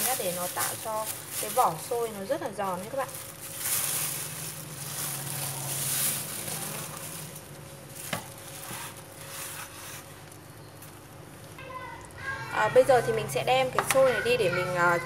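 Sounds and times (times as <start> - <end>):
powder rustling on a tray: 0.0 - 11.0.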